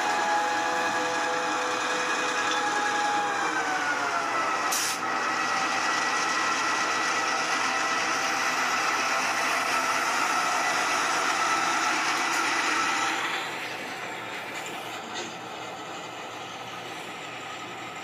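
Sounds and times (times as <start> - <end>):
model locomotive motor whine: 0.0 - 18.0
brief hiss: 4.7 - 5.0.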